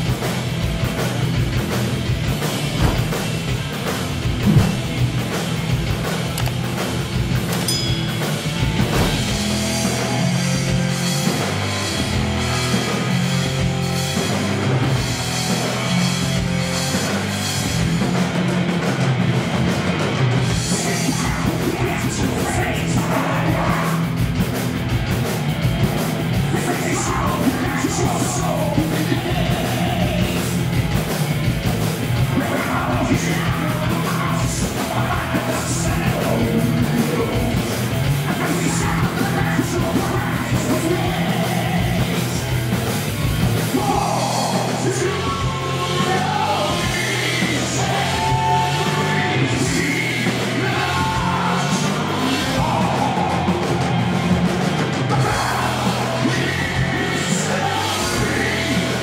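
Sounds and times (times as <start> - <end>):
live rock band: 0.0 - 59.0
lead vocals singing: 20.5 - 24.3, 26.3 - 30.7, 32.1 - 42.8, 43.6 - 59.0.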